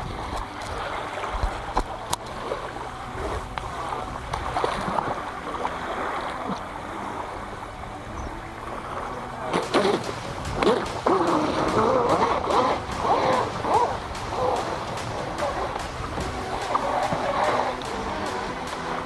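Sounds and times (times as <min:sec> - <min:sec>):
water sloshing and splashing: 0:00.0 - 0:19.0
loud pitched sounds: 0:09.7 - 0:19.0.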